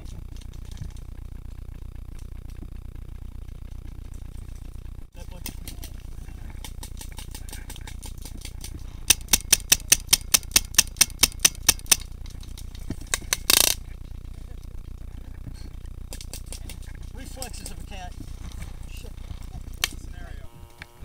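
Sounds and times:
paintball marker shots: 0:06.6 - 0:12.1
distant gunfire ticks: 0:09.1 - 0:12.0.

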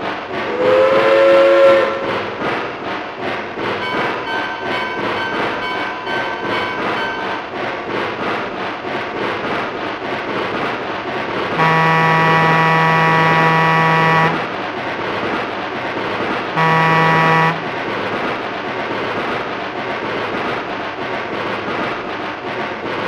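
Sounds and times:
steam locomotive running: 0:00.0 - 0:23.0
steam locomotive whistle blasts: 0:00.5 - 0:02.2, 0:11.6 - 0:14.6, 0:16.6 - 0:17.8.

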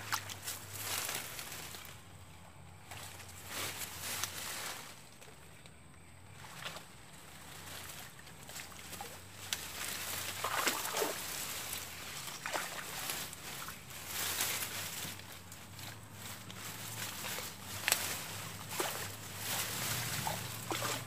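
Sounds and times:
water sloshing and splashing: 0:00.0 - 0:01.7, 0:06.3 - 0:21.0.

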